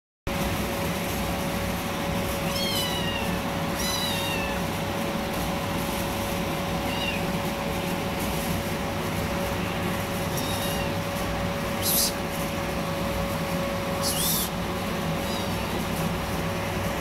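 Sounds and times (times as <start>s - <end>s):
steady hum: 0.3s - 17.0s
kitten meowing: 2.4s - 4.7s, 6.8s - 7.3s, 10.3s - 12.2s, 14.0s - 14.6s, 15.2s - 15.8s.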